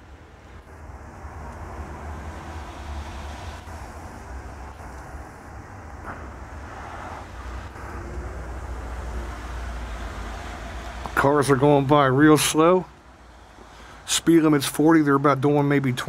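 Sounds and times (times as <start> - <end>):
vehicle driving on snow: 0.0 - 12.8.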